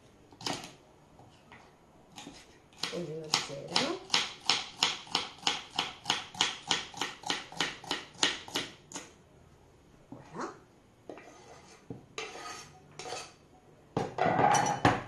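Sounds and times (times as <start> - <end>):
knife chopping on wooden board: 2.2 - 9.1.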